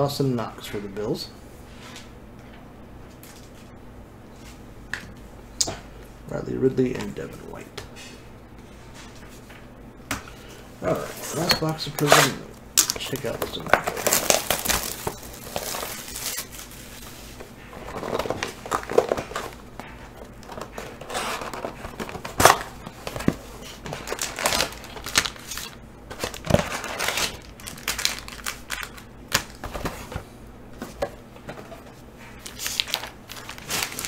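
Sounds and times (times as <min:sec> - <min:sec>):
cardboard and wrapping crinkling: 0:12.9 - 0:30.3, 0:32.4 - 0:34.0.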